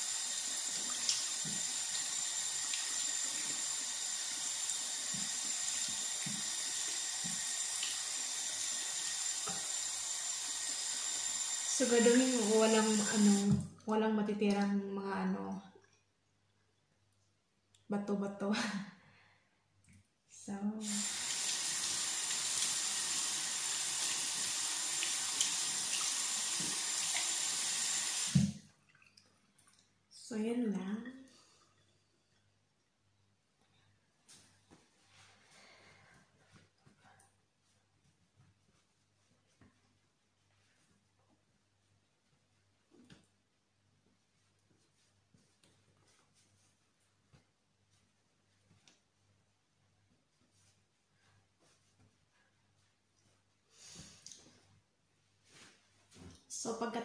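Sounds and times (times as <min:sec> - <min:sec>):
tap running into sink: 0:05.0 - 0:06.6
tap running: 0:05.0 - 0:07.9, 0:20.8 - 0:28.6.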